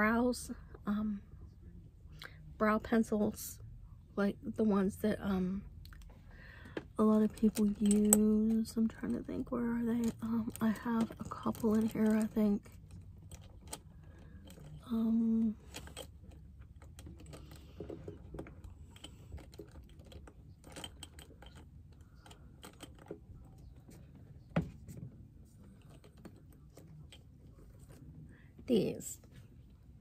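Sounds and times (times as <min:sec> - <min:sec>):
makeup items clattering: 0:06.9 - 0:14.9.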